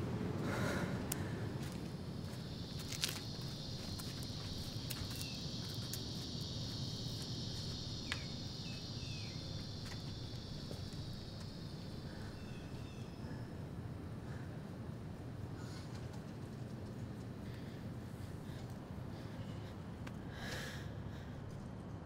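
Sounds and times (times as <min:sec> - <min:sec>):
low outdoor background noise: 0:00.0 - 0:22.0
high-pitched insect drone: 0:01.6 - 0:13.5.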